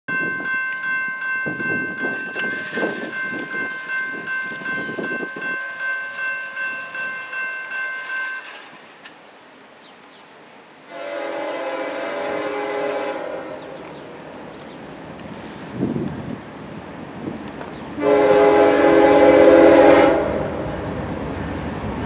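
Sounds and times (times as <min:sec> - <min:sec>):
railroad crossing bell ringing: 0:00.1 - 0:09.1.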